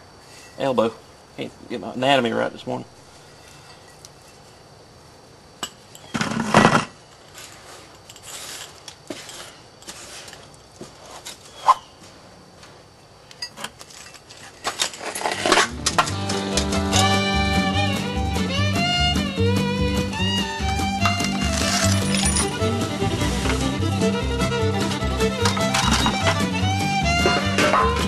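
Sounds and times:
rock and sand scraping in metal pan: 6.1 - 11.7, 13.9 - 16.1, 21.3 - 23.7
clinks and knocks: 21.0 - 22.6, 25.4 - 26.5, 27.2 - 28.0.

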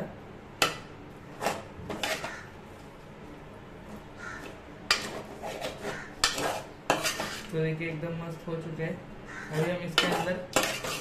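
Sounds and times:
metal ladle scraping a metal pan: 1.4 - 2.4, 4.9 - 7.5, 9.5 - 11.0.

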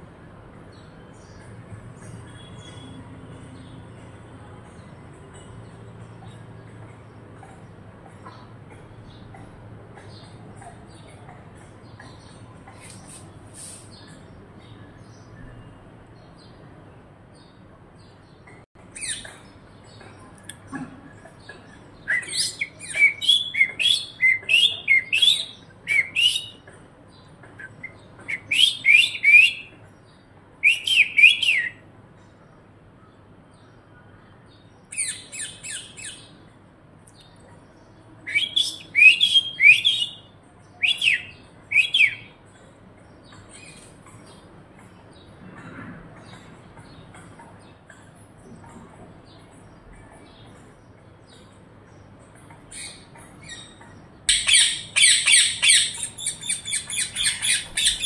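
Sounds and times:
parakeet squawking: 54.3 - 58.0.

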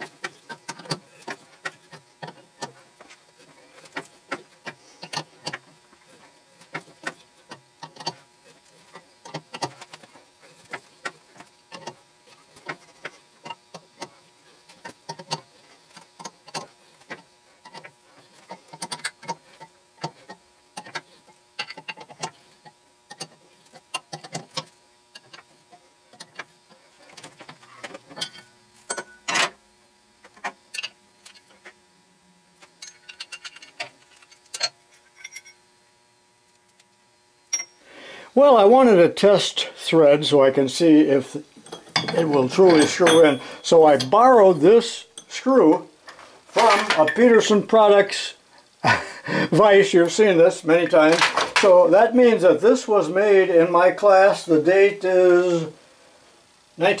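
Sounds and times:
faint steady hum: 0.0 - 57.0.

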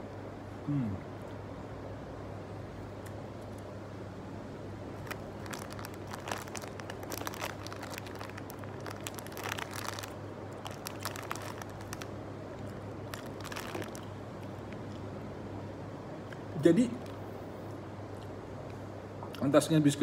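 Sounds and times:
steady low hum: 0.0 - 20.0
plastic packet crinkling: 4.9 - 14.7
biscuit being chewed: 5.0 - 15.1.

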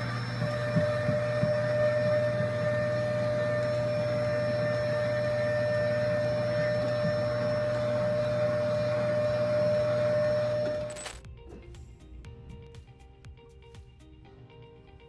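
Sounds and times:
vacuum cleaner whining: 0.0 - 11.1.

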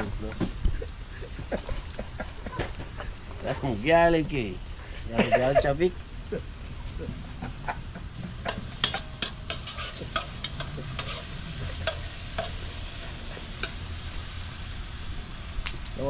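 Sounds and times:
onions and garlic sizzling: 0.0 - 16.0
metal spoon scraping pot: 8.5 - 12.6.

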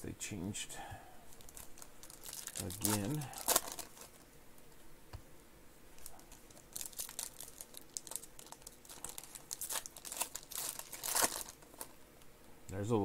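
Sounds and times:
foil wrapper crinkling: 1.3 - 4.2, 6.0 - 12.0.

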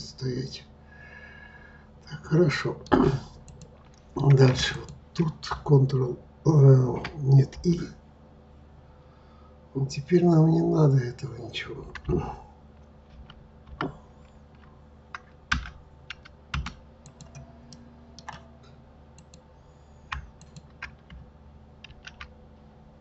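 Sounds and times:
computer keyboard key clicks: 13.1 - 17.4, 18.2 - 18.4, 20.1 - 21.2, 21.8 - 22.3.

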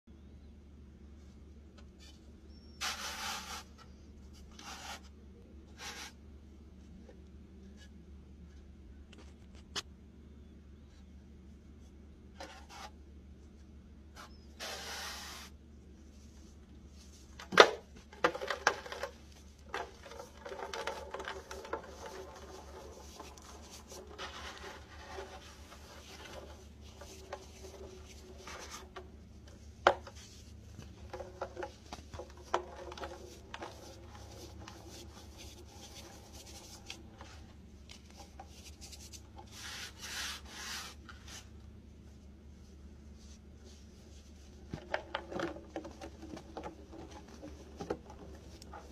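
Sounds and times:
powdery blocks scraping and rubbing: 2.7 - 6.2, 18.3 - 41.6.

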